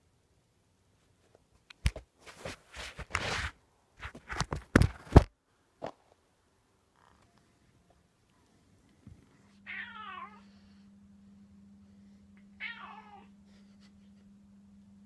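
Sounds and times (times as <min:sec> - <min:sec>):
cat meowing: 0:09.7 - 0:10.5, 0:12.6 - 0:13.3.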